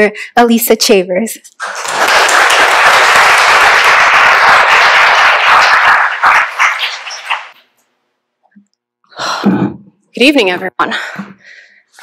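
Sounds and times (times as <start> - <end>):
audience applauding: 1.6 - 7.6.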